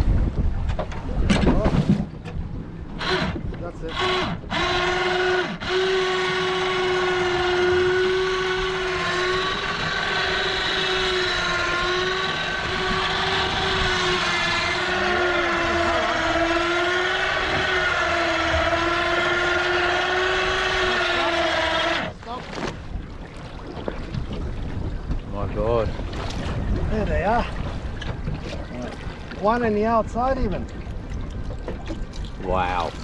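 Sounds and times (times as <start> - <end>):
electric winch whining: 3.0 - 22.2.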